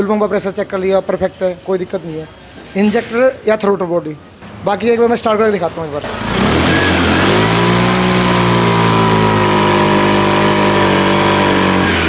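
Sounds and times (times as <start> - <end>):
scooter engine revving: 6.0 - 12.0.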